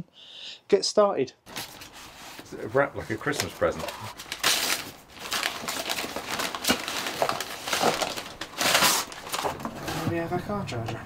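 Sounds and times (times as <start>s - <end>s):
paper tearing and crumpling: 1.5s - 10.1s.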